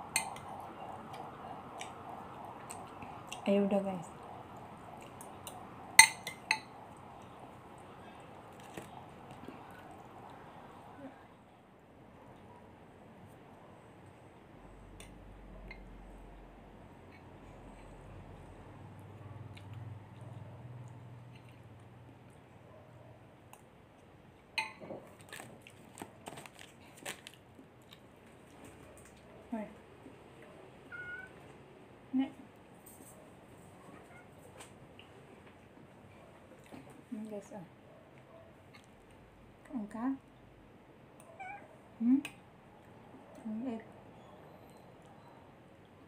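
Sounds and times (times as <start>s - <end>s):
metal spoon clinking on glass bowl: 6.0s - 6.7s, 24.6s - 24.8s
crunchy chewing: 25.0s - 29.3s.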